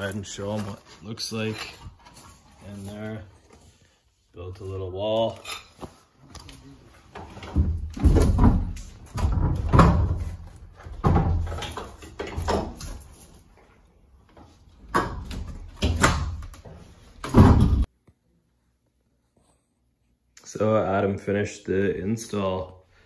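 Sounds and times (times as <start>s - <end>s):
sliding door thumps and rattles: 7.2s - 13.0s, 14.8s - 17.9s.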